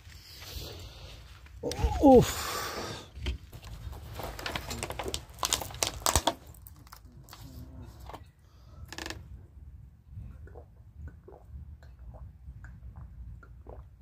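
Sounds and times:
handling clicks and crinkles: 3.5s - 8.2s.

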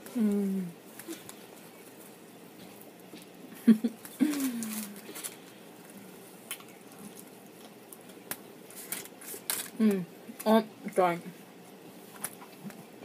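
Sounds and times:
woman humming mmm: 0.0s - 0.8s, 9.8s - 10.1s
woman chewing food: 0.0s - 10.4s.

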